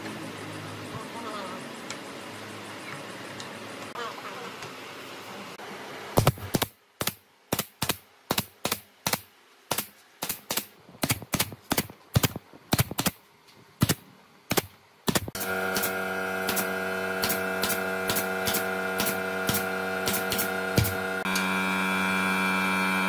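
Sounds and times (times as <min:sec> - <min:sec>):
steady multi-tone hum: 0:00.0 - 0:23.0
nail gun firing: 0:06.2 - 0:13.2, 0:13.8 - 0:21.3.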